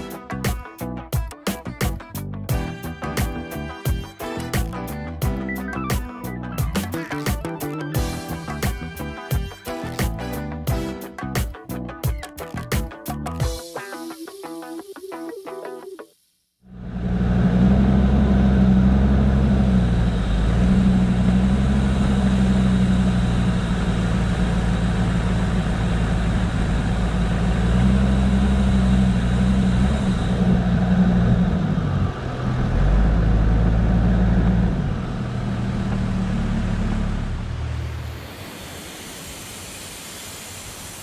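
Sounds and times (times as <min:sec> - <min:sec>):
diesel engine running at low revs: 0:16.7 - 0:39.0.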